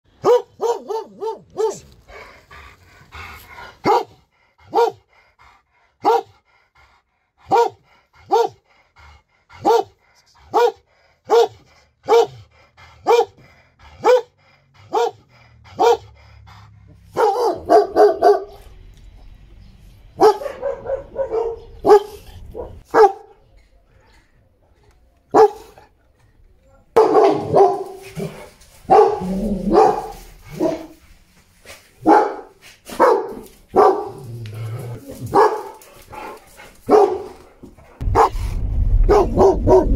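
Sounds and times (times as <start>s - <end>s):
dog barking loudly: 0.1s - 1.9s, 3.8s - 5.1s, 6.0s - 6.4s, 7.4s - 8.6s, 9.6s - 12.4s, 13.0s - 16.2s, 17.0s - 18.6s, 20.2s - 23.3s, 25.3s - 25.8s, 27.0s - 31.0s, 32.0s - 34.3s, 35.2s - 38.4s, 39.1s - 39.9s.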